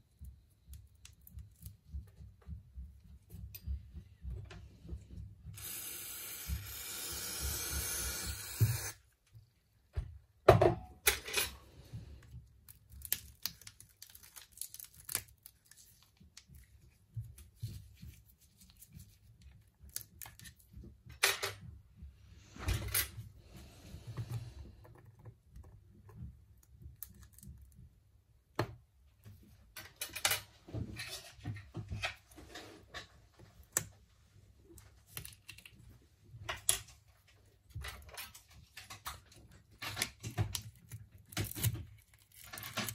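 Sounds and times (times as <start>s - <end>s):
tool scraping: 5.5s - 9.0s.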